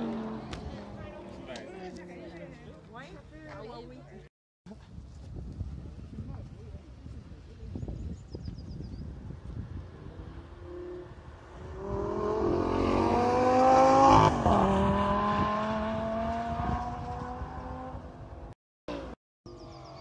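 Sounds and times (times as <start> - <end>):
sports car passing at speed: 0.0 - 1.6, 9.8 - 18.5.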